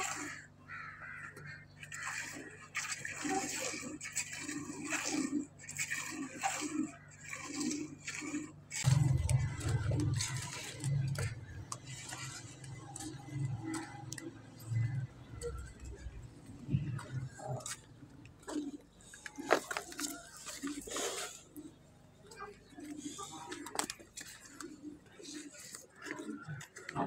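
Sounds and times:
low rumbling noise: 8.8s - 19.1s.

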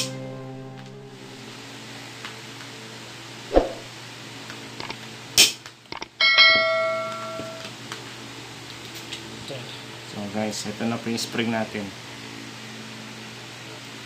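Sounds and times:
ringing metal clang: 6.2s - 7.6s.

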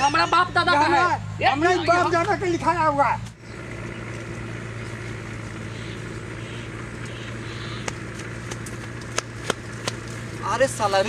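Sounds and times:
steady low hum: 0.0s - 11.0s
footsteps crunching on dirt path: 3.2s - 11.0s.

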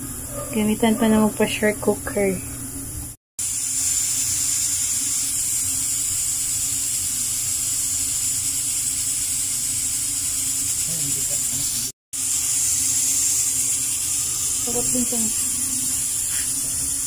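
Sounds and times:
pressure cooker hissing steam: 3.4s - 17.0s.

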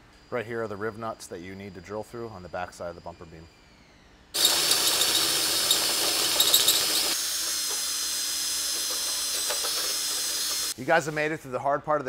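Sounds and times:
drill motor whine: 3.4s - 10.8s
cordless drill drilling metal: 4.4s - 10.8s.

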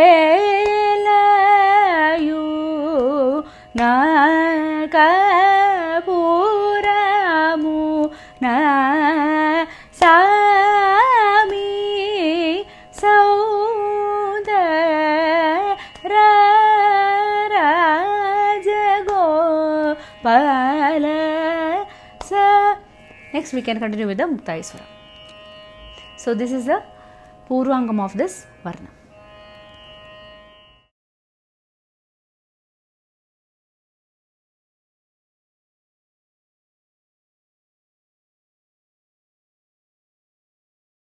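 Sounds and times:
woman singing: 0.0s - 24.8s.

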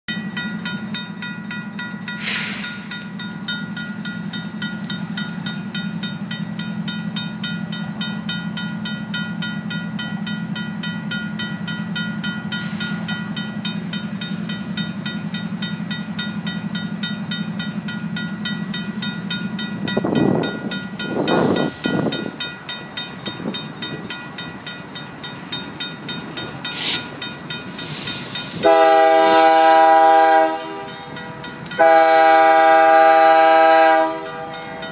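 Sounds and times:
crossing bell ringing: 0.1s - 34.9s
locomotive air horn: 28.5s - 31.0s, 31.7s - 34.6s.

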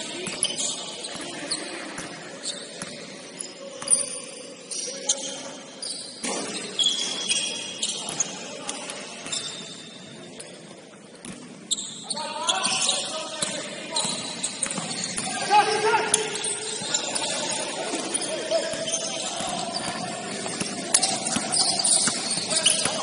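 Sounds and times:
shoes squeaking on court: 0.0s - 23.0s
faint voices: 12.0s - 23.0s.

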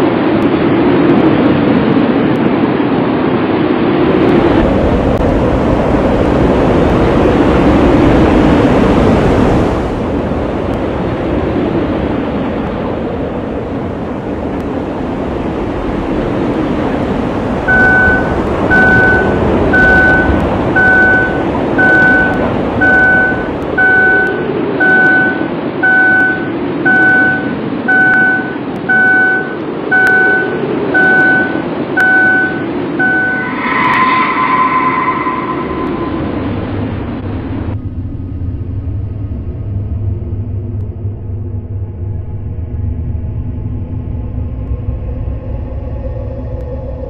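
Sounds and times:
wind and road noise: 0.0s - 47.0s
car warning chime beeping: 17.7s - 33.8s.

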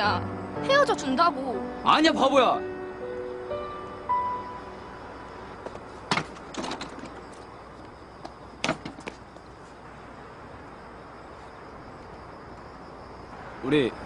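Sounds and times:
low background hiss: 0.0s - 14.0s.

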